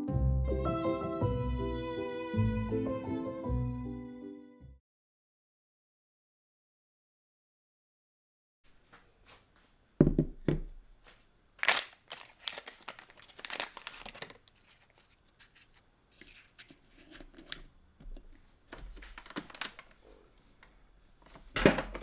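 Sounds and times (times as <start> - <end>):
dull knocks: 10.0 - 10.7.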